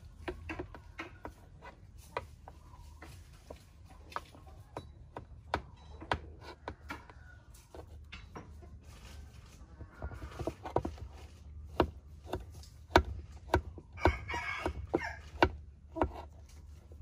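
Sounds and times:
knife chopping on wooden board: 11.6s - 16.3s
rooster crowing: 13.9s - 15.3s.

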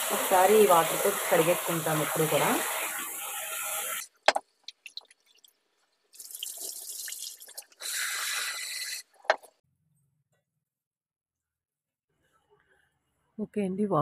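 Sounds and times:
water running and splashing: 0.0s - 9.2s.

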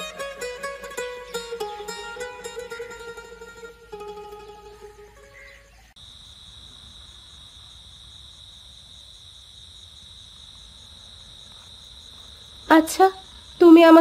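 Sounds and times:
plucked-string music: 0.0s - 5.9s
crickets chirping: 0.0s - 14.0s.

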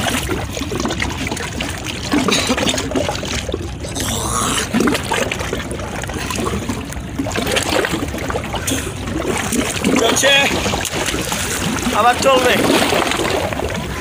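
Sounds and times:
waves lapping against shore: 0.0s - 14.0s.

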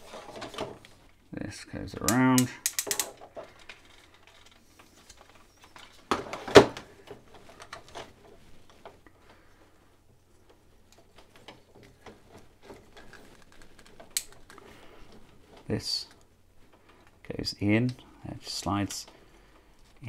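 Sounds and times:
plastic toy parts clicking: 2.0s - 5.4s, 12.9s - 14.6s
sharp plastic clacks: 2.0s - 6.0s.

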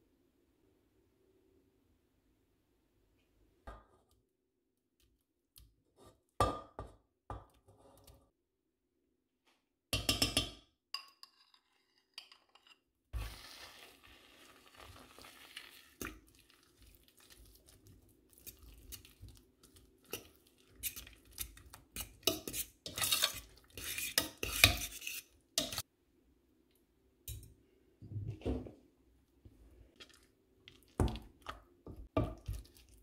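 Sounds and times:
metal spoon stirring in a pot: 11.0s - 13.4s, 15.6s - 25.9s.

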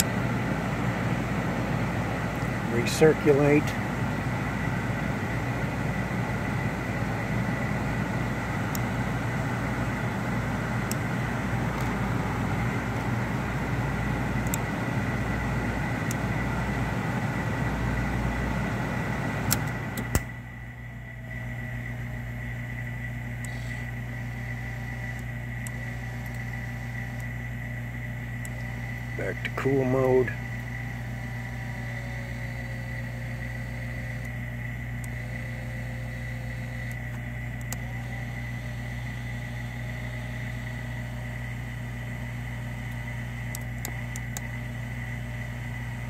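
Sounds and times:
car heater blower rushing air: 0.0s - 46.0s
sharp switch clicks: 14.4s - 14.7s, 19.5s - 20.3s.

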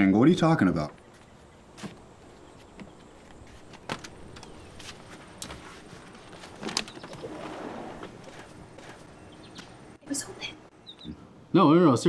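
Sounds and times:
glass door sliding: 7.0s - 8.2s.

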